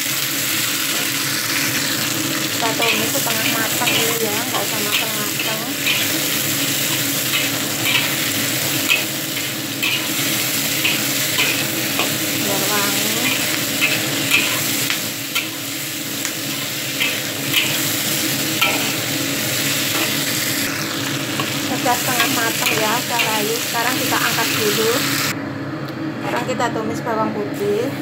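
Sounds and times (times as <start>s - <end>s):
vegetables sizzling in a wok: 0.0s - 25.4s
metal spatula scraping wok: 2.6s - 15.8s, 16.4s - 20.4s.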